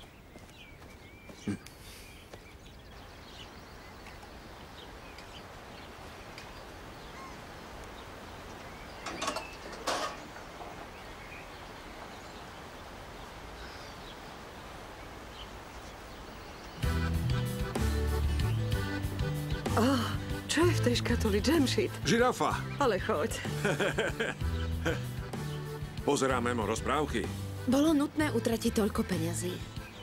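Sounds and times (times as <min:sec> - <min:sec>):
faint bird chirps: 0:00.0 - 0:16.9
outdoor ambience: 0:00.0 - 0:26.2.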